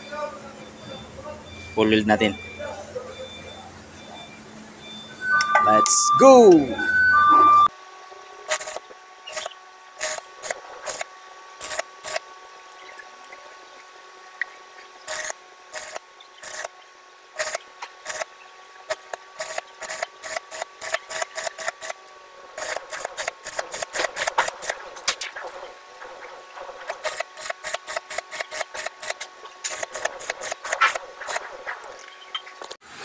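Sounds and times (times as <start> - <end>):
steady hum: 5.8 - 33.0
welding arc crackling: 8.4 - 13.1, 14.8 - 32.8.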